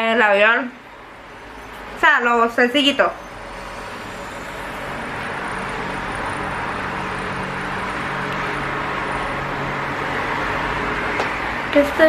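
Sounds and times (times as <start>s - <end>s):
machine rushing noise: 3.0s - 11.7s.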